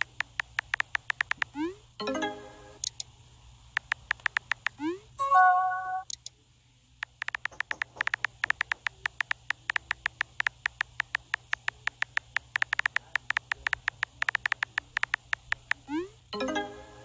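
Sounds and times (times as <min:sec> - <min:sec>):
keyboard tap clicks: 0:00.0 - 0:01.5, 0:03.8 - 0:04.8, 0:07.0 - 0:15.8.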